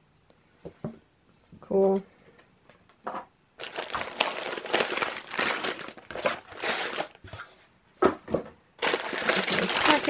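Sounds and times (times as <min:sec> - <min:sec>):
wrapping rustling and crackling: 0:03.6 - 0:07.6, 0:08.8 - 0:10.0.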